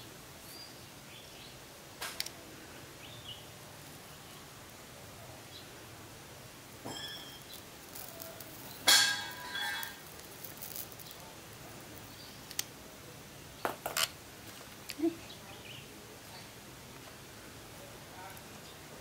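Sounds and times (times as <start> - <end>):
hard objects clinking: 6.7 - 12.6.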